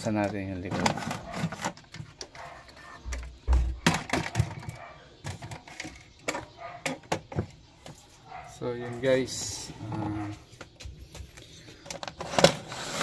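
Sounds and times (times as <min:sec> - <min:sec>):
plastic cover clicking and knocking: 0:03.1 - 0:07.6.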